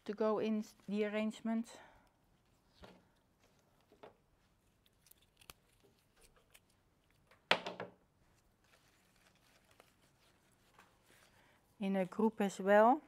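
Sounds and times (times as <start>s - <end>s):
flower stems rustling and clicking: 2.4s - 7.5s, 8.3s - 11.4s.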